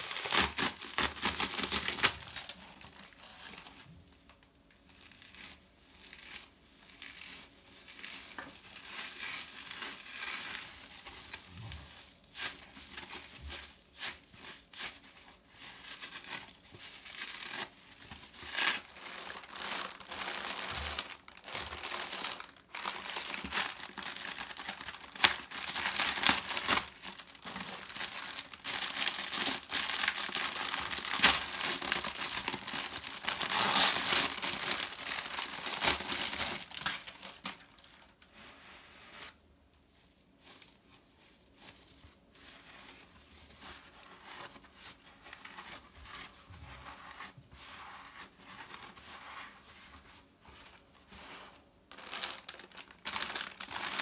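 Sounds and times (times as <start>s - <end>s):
plastic packaging crinkling: 0.0s - 38.3s, 51.9s - 54.0s.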